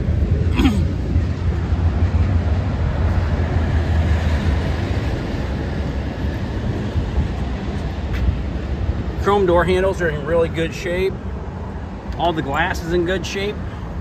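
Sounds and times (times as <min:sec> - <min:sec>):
train passing: 0:00.0 - 0:10.6.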